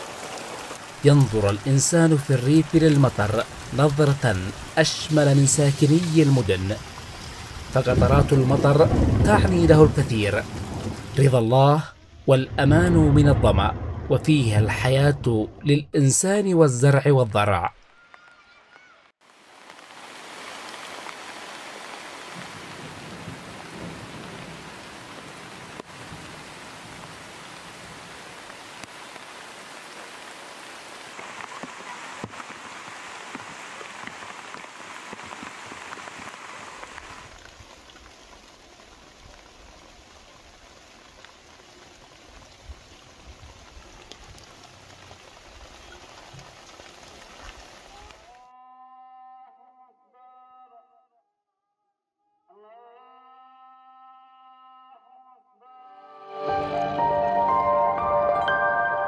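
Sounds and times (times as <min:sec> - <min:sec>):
rain falling: 0:00.0 - 0:15.5, 0:17.8 - 0:48.4.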